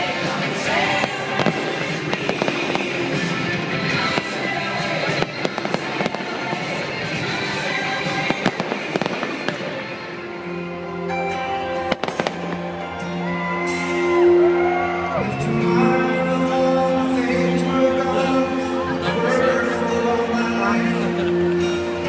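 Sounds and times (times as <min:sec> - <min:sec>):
music with sustained notes: 0:00.0 - 0:22.0
fireworks sharp bangs: 0:00.4 - 0:10.0, 0:11.8 - 0:12.6
fireworks crackling pops: 0:00.8 - 0:10.0, 0:11.8 - 0:12.6.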